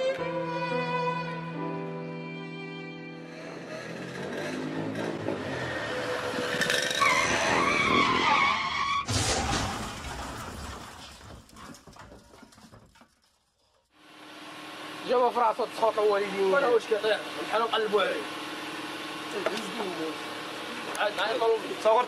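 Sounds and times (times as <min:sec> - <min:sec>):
tyres squealing: 0:03.3 - 0:09.1
vehicle crash impact: 0:04.8 - 0:13.0
debris clattering: 0:09.1 - 0:13.8.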